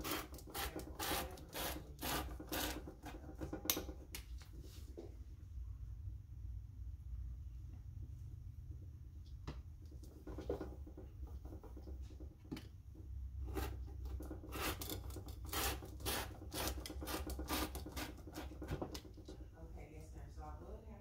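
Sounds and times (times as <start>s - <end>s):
rotary cutter slicing paper: 0.0s - 2.9s, 14.4s - 18.8s.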